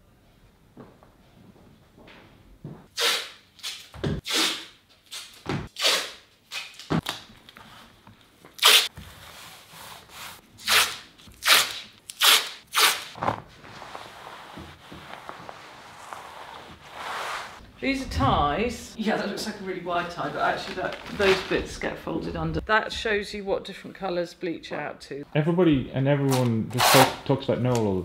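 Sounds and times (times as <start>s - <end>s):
fabric rustling: 13.1s - 17.6s.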